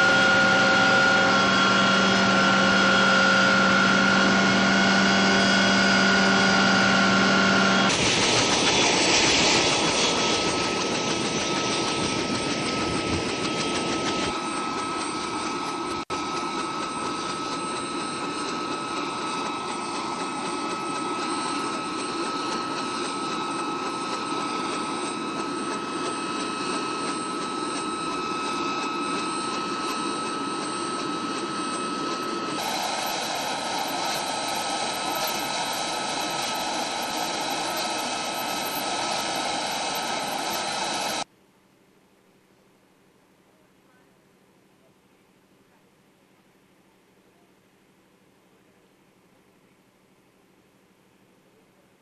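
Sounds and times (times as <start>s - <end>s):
helicopter rotor rush: 0.0s - 41.3s
high steady whine: 0.0s - 41.3s.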